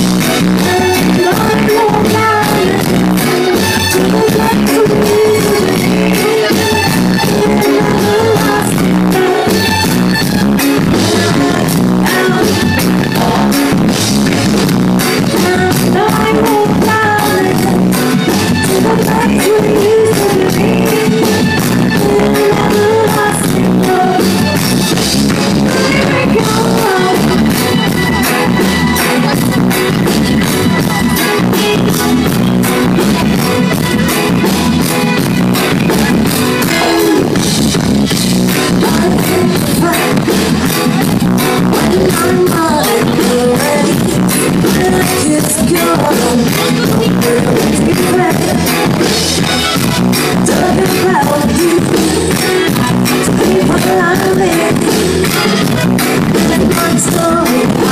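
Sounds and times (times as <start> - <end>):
drums with a steady beat: 0.0 - 57.9
guitar: 0.0 - 57.9
keyboards: 0.0 - 57.9
woman singing into a microphone: 0.3 - 9.9, 10.7 - 14.4, 15.1 - 24.7, 25.5 - 27.8, 36.6 - 37.6, 38.5 - 49.2, 50.2 - 57.9.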